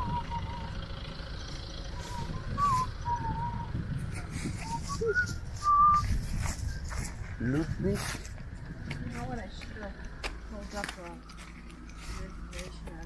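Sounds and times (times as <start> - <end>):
person whistling a tune: 0.0 - 0.8, 2.0 - 3.8, 4.6 - 6.2
low outdoor rumble: 0.0 - 13.0.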